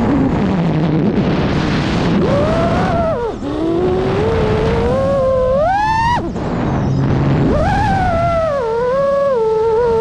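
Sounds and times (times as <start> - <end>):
rush of air: 0.0 - 10.0
quadcopter motors whining: 2.2 - 6.4, 7.4 - 10.0.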